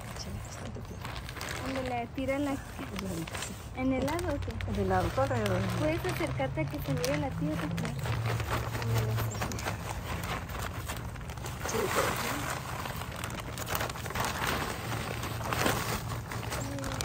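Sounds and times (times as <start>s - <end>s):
plastic bag crinkling: 0.0s - 17.0s
soil pouring and rustling: 0.0s - 17.0s.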